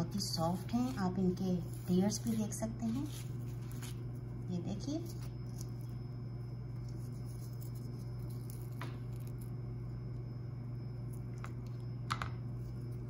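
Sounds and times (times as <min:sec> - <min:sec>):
steady low hum: 0:00.0 - 0:13.0
flaky bread tearing clicks: 0:06.8 - 0:10.3.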